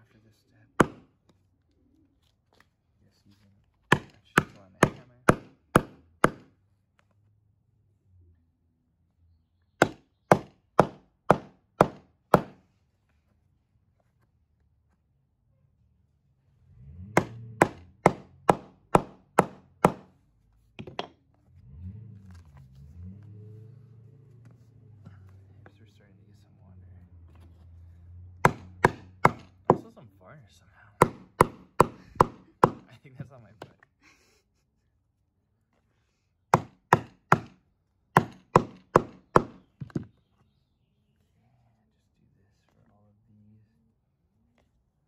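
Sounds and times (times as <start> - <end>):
hammer striking steel chisel: 0.8 - 1.1, 3.9 - 6.5, 9.8 - 12.6, 17.2 - 20.1, 28.4 - 29.9, 31.0 - 32.9, 36.6 - 37.6, 38.2 - 40.1.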